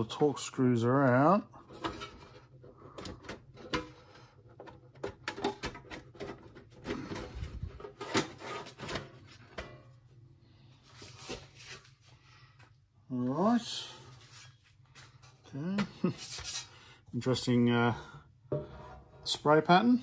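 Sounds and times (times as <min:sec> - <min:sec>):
metal cover scraping and clunking: 0:01.6 - 0:10.0, 0:18.5 - 0:19.4.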